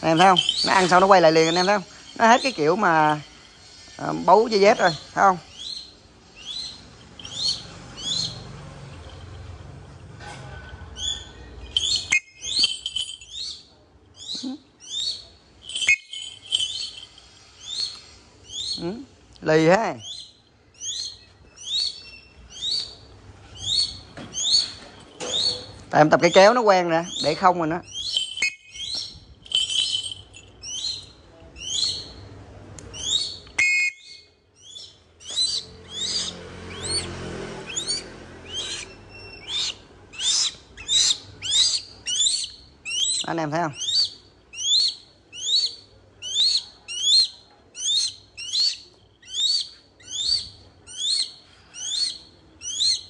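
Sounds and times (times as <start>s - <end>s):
metallic clink: 11.8s - 13.6s, 15.6s - 17.4s, 28.0s - 31.1s
hawk calling shrilly: 33.0s - 37.1s, 37.7s - 53.0s.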